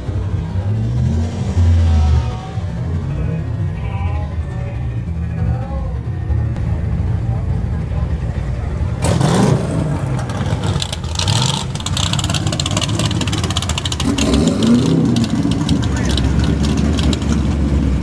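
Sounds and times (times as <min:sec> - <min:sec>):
race car engines revving: 0:00.0 - 0:18.0
crackly engine rasp: 0:09.0 - 0:18.0.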